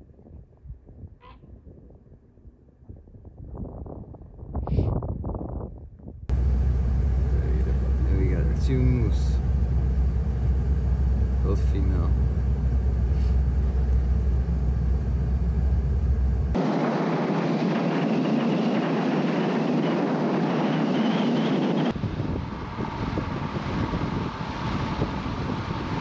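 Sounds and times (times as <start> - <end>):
vehicle rumble: 6.3 - 16.8
steady rushing noise: 6.3 - 26.0.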